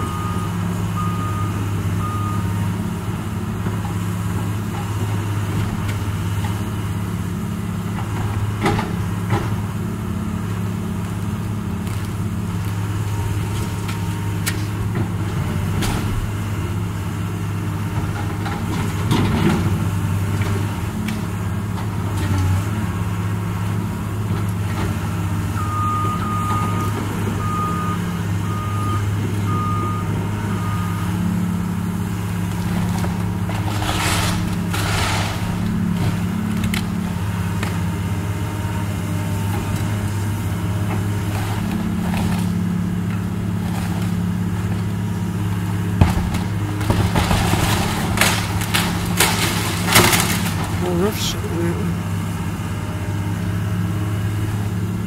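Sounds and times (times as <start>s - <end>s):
excavator diesel engine running: 0.0s - 55.0s
timber cracking and crashing: 32.9s - 36.9s, 46.0s - 51.3s.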